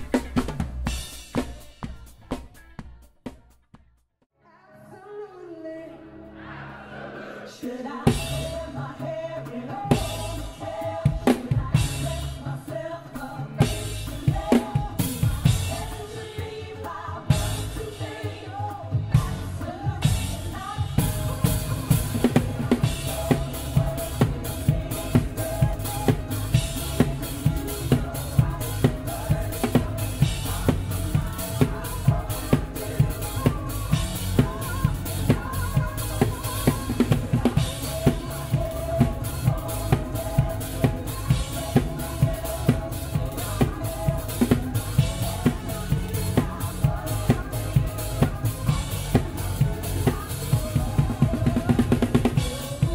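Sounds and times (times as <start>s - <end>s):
band playing: 0.0s - 3.0s, 13.1s - 52.9s
drum kit playing: 0.0s - 4.0s, 8.0s - 52.9s.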